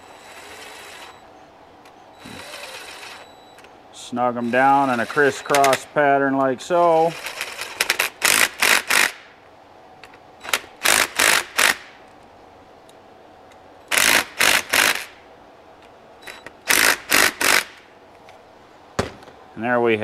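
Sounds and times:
impact driver bursts: 2.2 - 3.3, 4.4 - 5.9, 7.0 - 9.3, 10.4 - 12.0, 13.9 - 15.2, 16.2 - 17.9.

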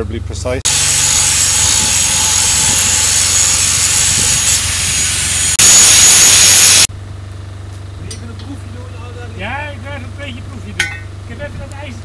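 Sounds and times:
arc torch hissing: 0.7 - 6.9.

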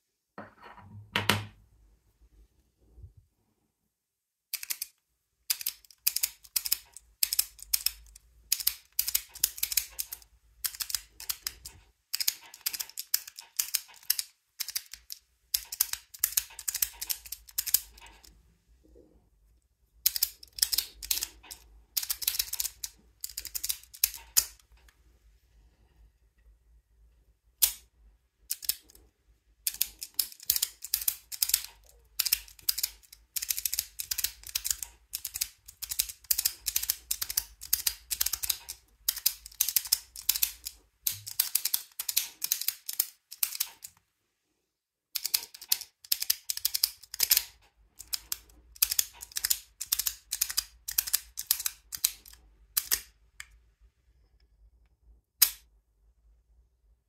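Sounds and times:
padlock metallic clicks and rattles: 4.5 - 18.4, 20.0 - 24.6, 28.5 - 29.0, 29.6 - 44.0, 45.1 - 53.1.

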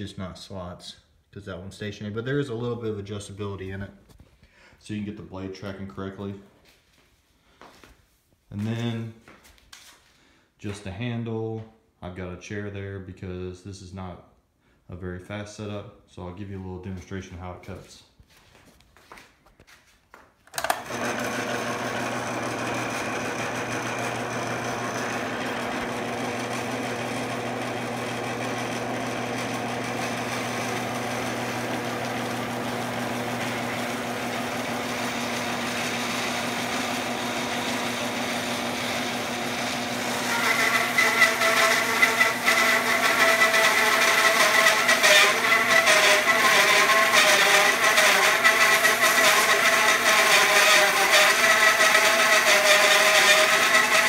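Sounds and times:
bandsaw mill motor running: 20.5 - 54.0
saw blade whining through wood: 20.5 - 54.0.

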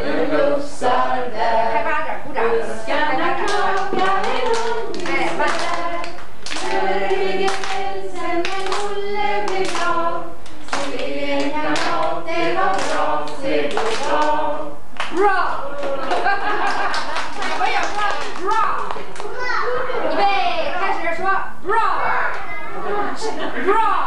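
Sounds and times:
women singing together: 0.0 - 17.0
hand claps: 3.4 - 14.4, 15.0 - 19.4.

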